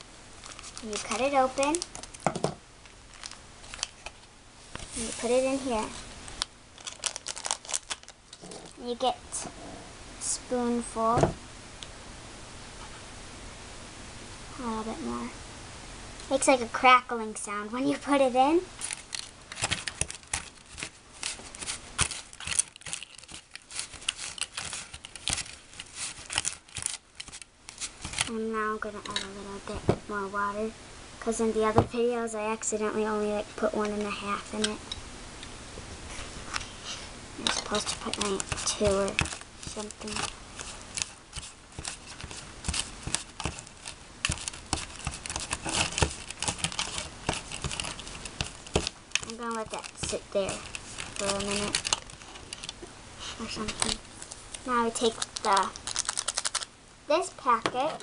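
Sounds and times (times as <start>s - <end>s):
candy powder crackling: 0.4s - 2.3s, 2.9s - 4.2s, 4.8s - 9.4s, 18.2s - 29.0s, 37.4s - 56.7s
fingers working damp mixture: 18.9s - 28.4s, 37.4s - 52.8s
plastic spoon tapping and scraping: 37.4s - 40.3s, 40.9s - 52.8s.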